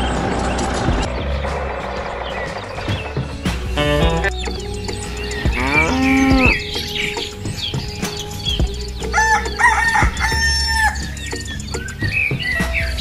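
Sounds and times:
background music: 0:00.5 - 0:13.0
rooster crowing: 0:09.2 - 0:11.1.

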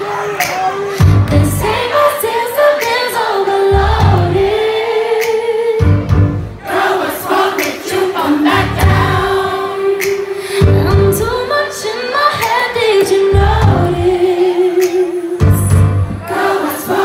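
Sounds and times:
choir-like backing vocals: 0:00.0 - 0:17.0
woman singing into microphone: 0:00.8 - 0:06.1, 0:07.3 - 0:17.0.

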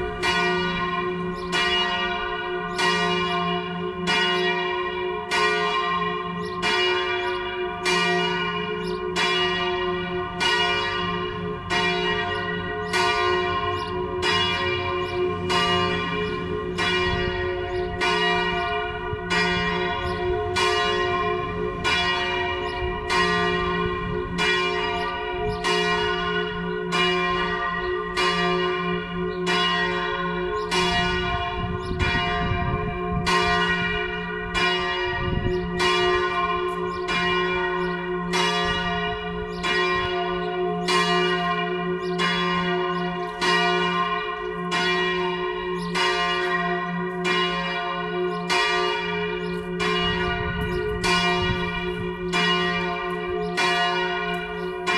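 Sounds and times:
church bells pealing: 0:00.0 - 0:54.9.

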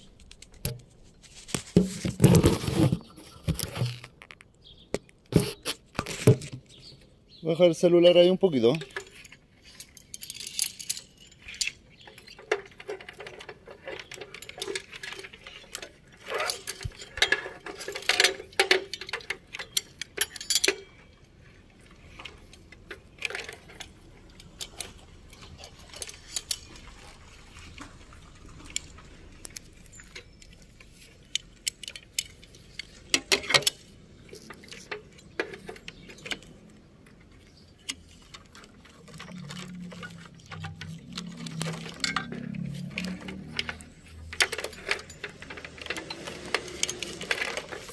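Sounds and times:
metallic clicks and jangles of tools: 0:08.7 - 0:26.9, 0:28.7 - 0:47.9.

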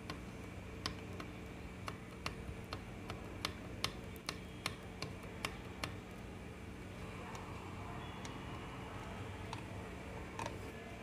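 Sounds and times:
light ticking: 0:00.0 - 0:06.3
steady low hum: 0:00.0 - 0:11.0.

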